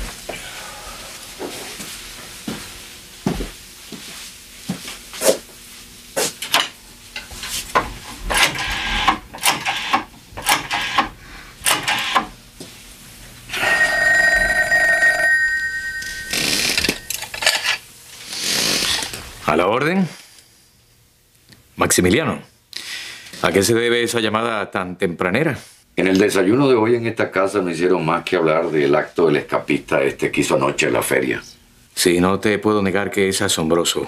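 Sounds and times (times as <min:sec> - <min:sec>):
telephone bell ringing: 0:13.5 - 0:17.2.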